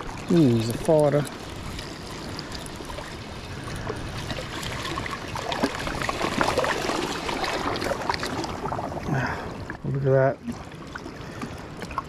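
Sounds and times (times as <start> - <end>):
water lapping: 0.0 - 12.0
fish splashing at surface: 3.8 - 9.4.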